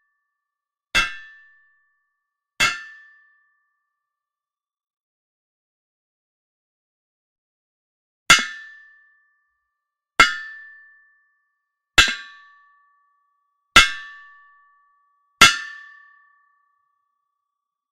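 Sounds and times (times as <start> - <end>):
hammer striking metal: 1.0 - 1.4, 2.6 - 3.0, 12.0 - 12.4, 15.4 - 16.0.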